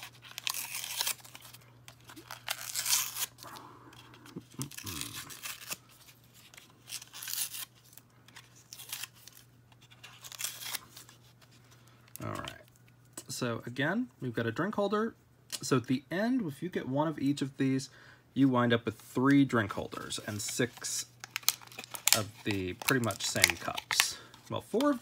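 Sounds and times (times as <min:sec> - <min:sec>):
plastic wrap crinkling and ripping: 0:00.0 - 0:11.3, 0:20.0 - 0:25.0.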